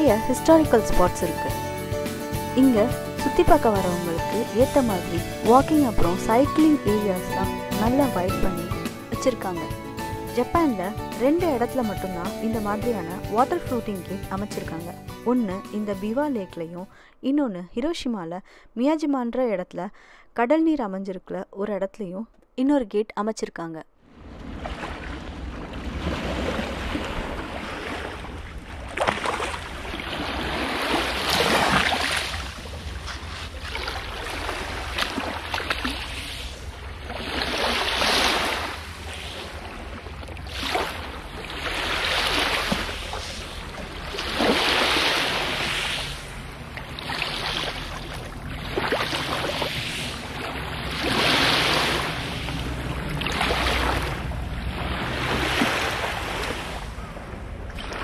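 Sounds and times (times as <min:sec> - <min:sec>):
lake waves washing onto shore: 0:24.1 - 0:57.1.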